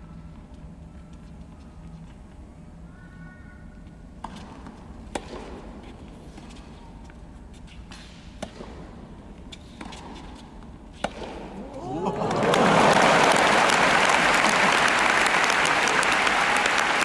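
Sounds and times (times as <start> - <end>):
tennis ball racket strikes: 4.2 - 6.6, 7.7 - 11.6
hushed crowd hum: 11.4 - 17.0.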